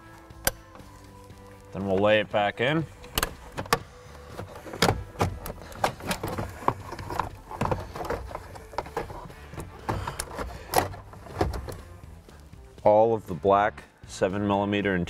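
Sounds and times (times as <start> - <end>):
plastic housing knocking and scraping: 3.1 - 12.0.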